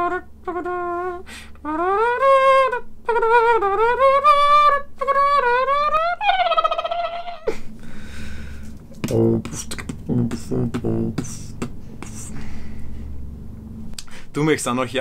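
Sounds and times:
man vocalizing wordless tune: 8.9s - 12.5s.

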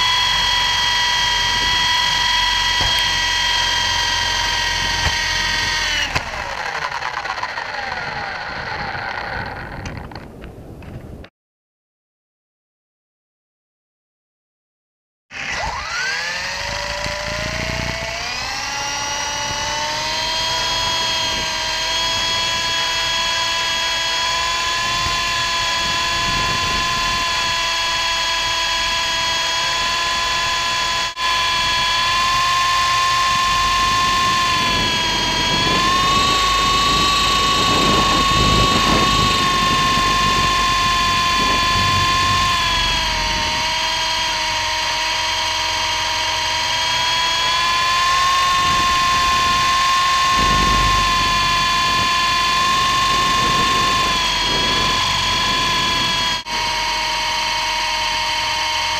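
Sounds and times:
electric motor and rotor whining: 0.0s - 11.0s, 15.3s - 58.9s
wind rumbling on microphone: 7.7s - 11.3s, 16.6s - 44.6s, 47.4s - 56.8s.

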